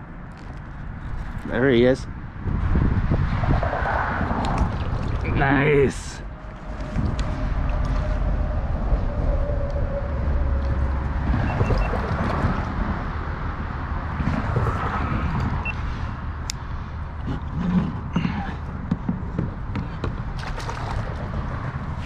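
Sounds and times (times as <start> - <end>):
fishing gear clicks and knocks: 0.3 - 1.5
wind buffeting microphone: 0.8 - 22.0.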